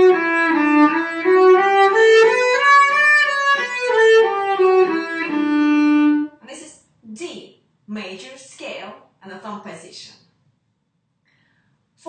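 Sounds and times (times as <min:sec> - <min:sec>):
bowed cello playing a scale: 0:00.0 - 0:06.3.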